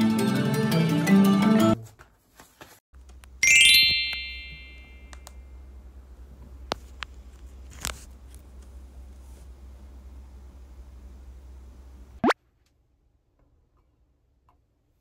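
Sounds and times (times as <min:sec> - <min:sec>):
bright rising chime: 0:03.4 - 0:05.2.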